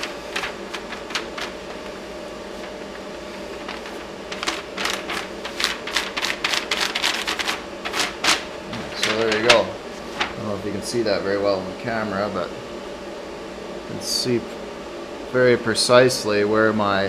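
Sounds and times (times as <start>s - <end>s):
hand rubbing over paper: 0.0s - 10.5s
steady hum: 0.0s - 17.0s.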